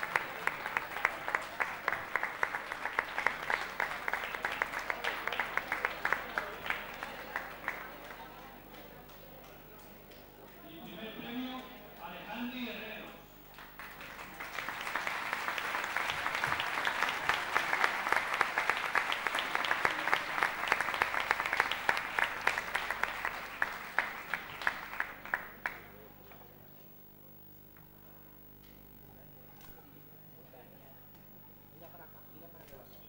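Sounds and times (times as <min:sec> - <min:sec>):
audience applauding: 0:00.0 - 0:10.2, 0:13.5 - 0:26.1.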